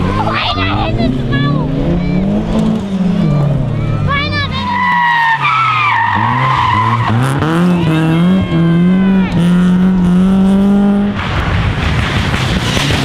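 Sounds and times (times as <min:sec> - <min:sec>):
car engine accelerating: 0:00.0 - 0:13.0
tyres squealing: 0:03.2 - 0:09.2.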